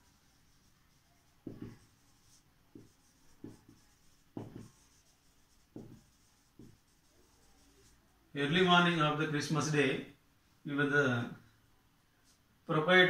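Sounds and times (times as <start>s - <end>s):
marker writing on whiteboard: 0.0s - 8.1s.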